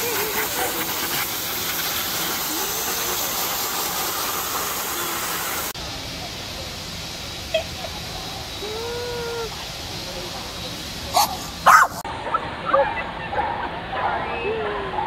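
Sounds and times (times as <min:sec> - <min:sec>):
faint distant voices: 0:00.0 - 0:15.0
steady hissing background noise: 0:00.0 - 0:15.0.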